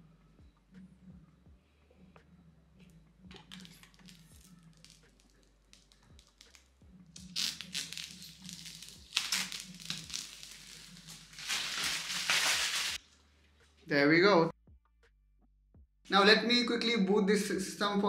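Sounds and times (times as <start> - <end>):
plastic film peeling and crinkling: 3.4 - 13.0.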